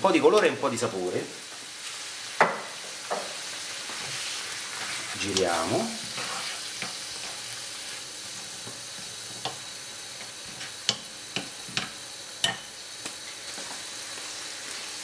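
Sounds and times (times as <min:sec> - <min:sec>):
vegetables sizzling in a frying pan: 0:00.0 - 0:15.0.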